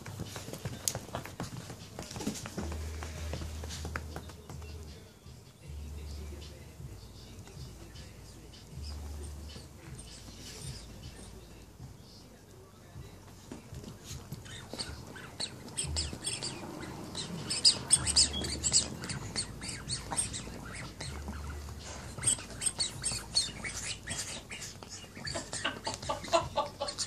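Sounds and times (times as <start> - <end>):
dog rustling on quilt: 9.8 - 11.3.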